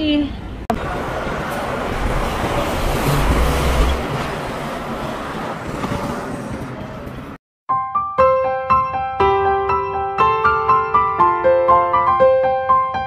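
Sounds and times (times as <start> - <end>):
street traffic: 0.0 - 7.4
bus engine rumble passing: 0.4 - 7.4.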